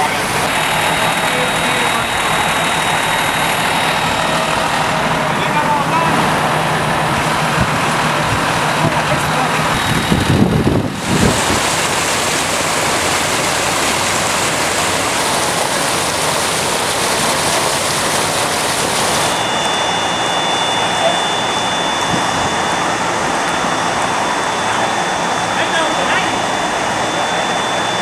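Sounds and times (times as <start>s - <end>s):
faint steady high tones: 0.0s - 6.1s, 19.2s - 28.0s
floodwater rushing: 0.0s - 28.0s.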